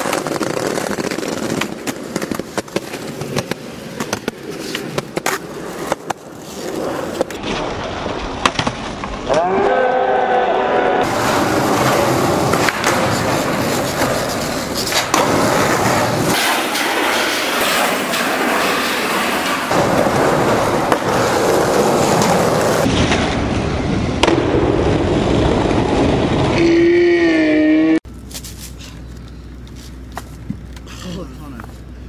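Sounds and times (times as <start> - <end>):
skateboard clicks and knocks: 0.0 - 9.4, 11.0 - 23.4
skateboard wheels rolling on concrete: 0.0 - 32.0.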